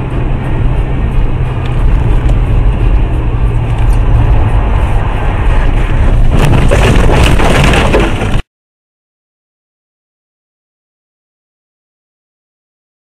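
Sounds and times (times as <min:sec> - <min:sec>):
car engine and tyre drone: 0:00.0 - 0:08.3.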